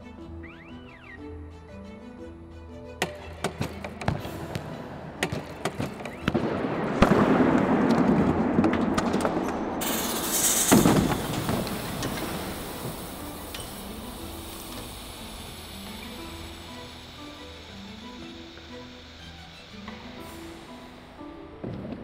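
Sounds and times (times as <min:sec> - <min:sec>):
sharp bang: 0:03.0 - 0:14.0
high hiss: 0:03.0 - 0:22.0
loud rushing noise: 0:04.4 - 0:15.3.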